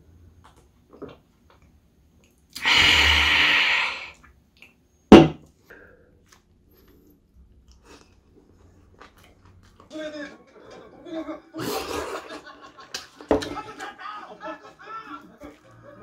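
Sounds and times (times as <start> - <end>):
beer can hissing open: 2.6 - 4.2
can knocking on table: 5.1 - 5.4.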